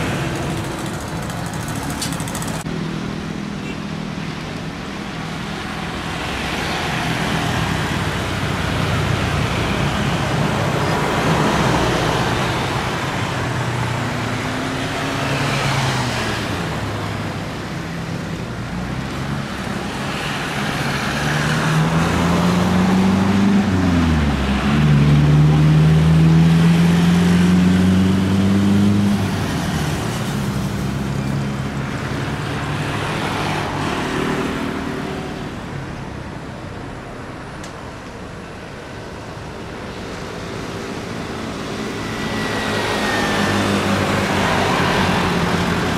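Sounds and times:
jet engines at taxi power: 4.4s - 22.1s, 29.1s - 45.9s.

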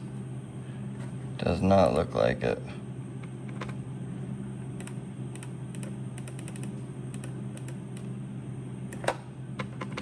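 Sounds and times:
steady low hum: 0.0s - 10.0s
computer keyboard clicks: 4.8s - 8.1s.

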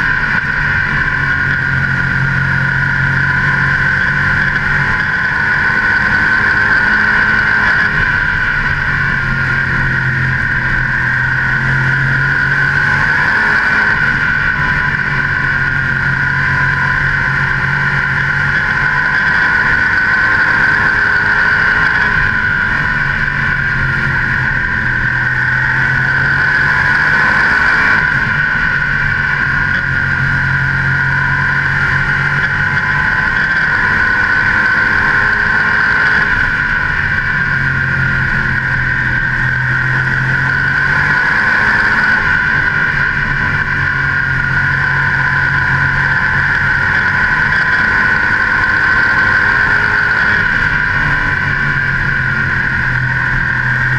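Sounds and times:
race car engine running hard: 0.0s - 53.9s.

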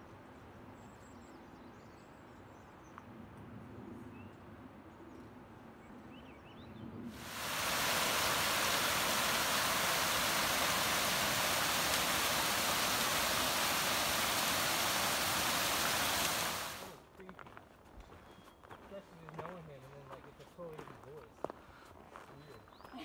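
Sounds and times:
water rushing: 7.2s - 17.0s.

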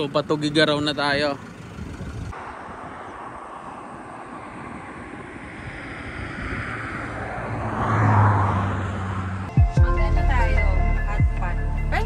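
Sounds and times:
road traffic: 0.0s - 12.0s
vehicle passing close: 1.2s - 9.5s
wind on microphone: 1.7s - 9.0s.

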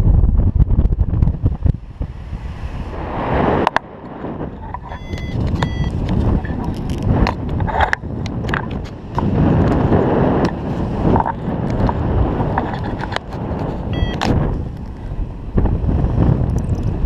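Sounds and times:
wind buffeting microphone: 0.0s - 17.0s
short pitched beep: 4.9s - 6.0s, 13.9s - 14.3s.

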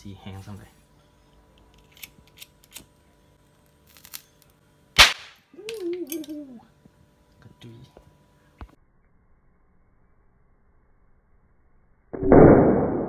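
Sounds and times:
sharp explosive crack: 5.0s - 5.4s, 12.2s - 13.0s.

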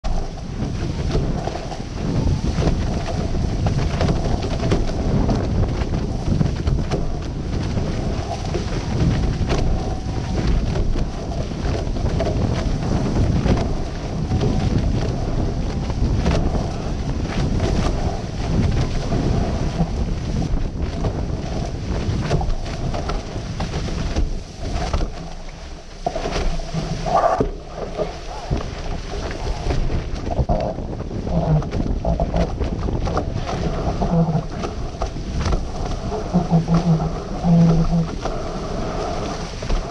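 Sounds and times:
water rushing past hulls: 0.0s - 39.9s
wind buffeting microphone: 0.0s - 39.9s.

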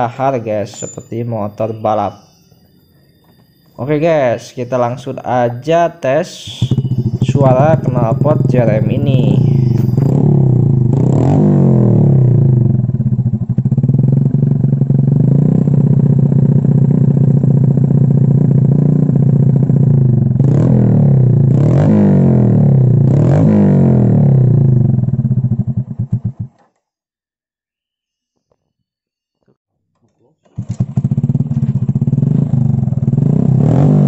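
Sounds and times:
motorcycle engine idling and revving: 6.4s - 26.7s, 30.5s - 34.0s.

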